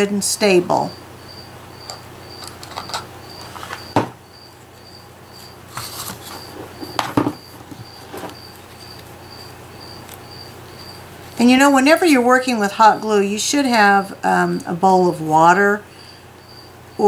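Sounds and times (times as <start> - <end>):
sharp knocks: 6.8 - 8.0.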